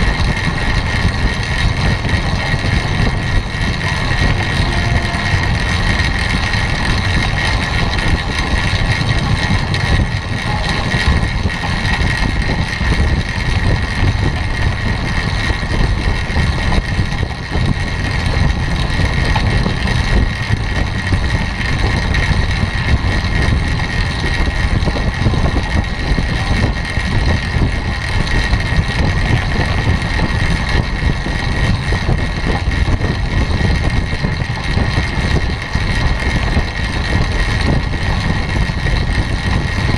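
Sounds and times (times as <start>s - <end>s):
bicycle tyres rolling on wooden boards: 0.0s - 39.9s
steady high whine: 0.0s - 39.9s
wind buffeting microphone: 0.0s - 39.9s.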